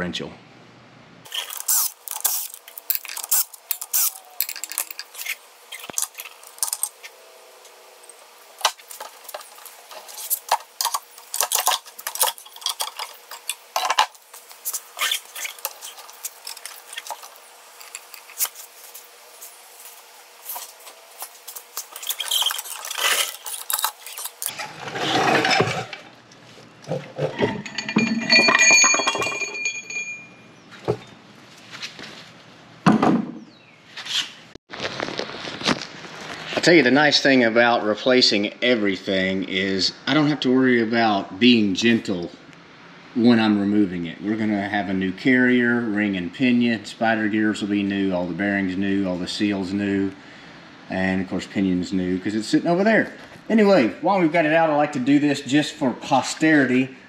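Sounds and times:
metal scraping: 8.0s - 26.1s
metallic clinks and knocks: 27.2s - 30.5s.

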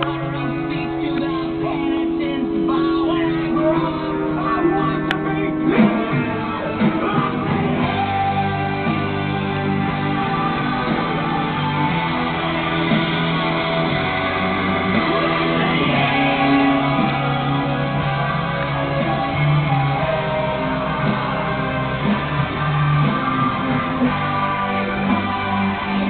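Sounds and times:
rock music with guitar: 0.0s - 26.0s.

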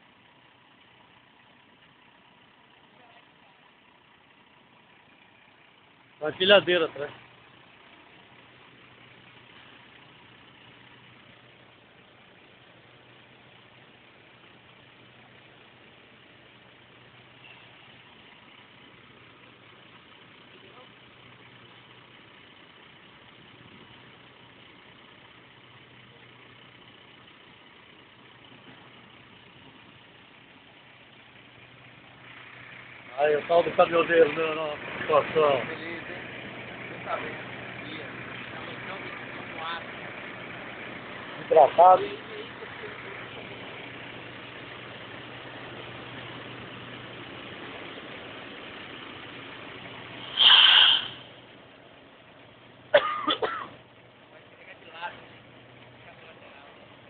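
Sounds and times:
diesel truck engine idling: 0.0s - 57.0s
loud high-pitched hiss: 50.2s - 51.4s.

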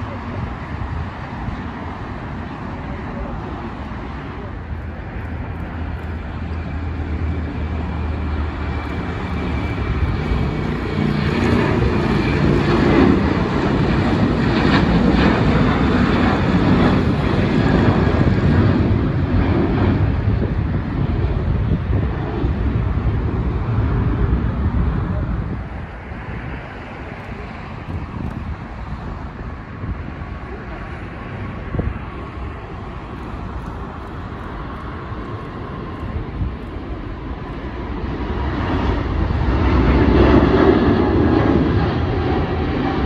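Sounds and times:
jet engines roaring at takeoff: 0.0s - 43.0s.

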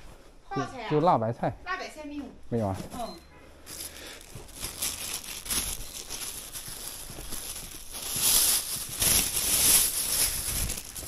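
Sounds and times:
plastic bag rustling and crinkling: 2.6s - 11.0s.

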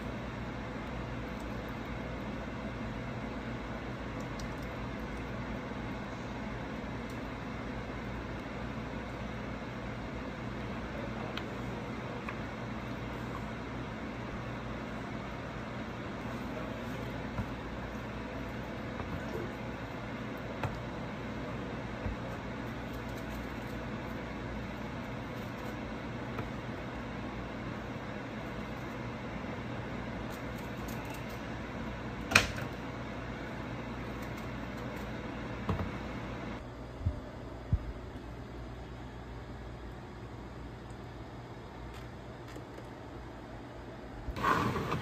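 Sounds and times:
steady mechanical hum: 0.0s - 45.0s.

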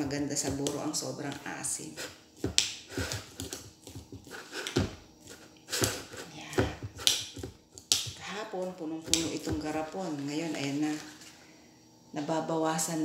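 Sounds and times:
spoon scraping a glass jar: 4.2s - 6.3s.

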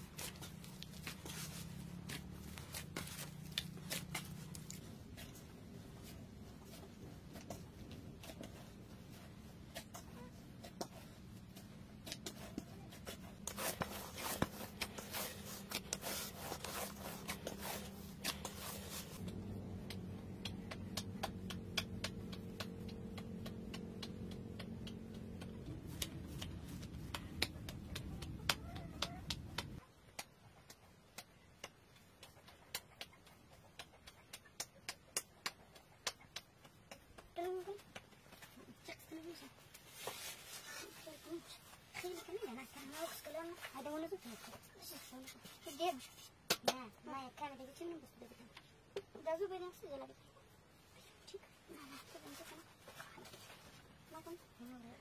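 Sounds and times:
low steady hum: 0.0s - 29.8s
hands kneading bread dough: 0.0s - 55.0s.

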